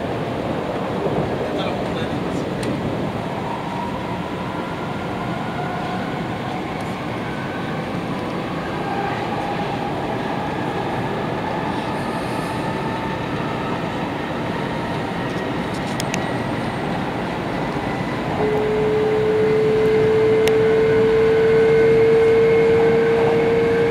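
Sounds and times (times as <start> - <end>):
train cabin rumble and hiss: 0.0 - 23.9
train motor whine rising: 15.4 - 23.9.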